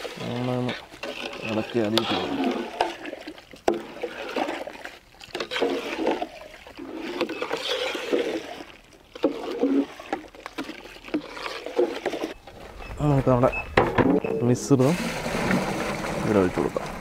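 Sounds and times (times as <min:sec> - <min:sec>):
milk sloshing in a pot: 0:00.0 - 0:12.6.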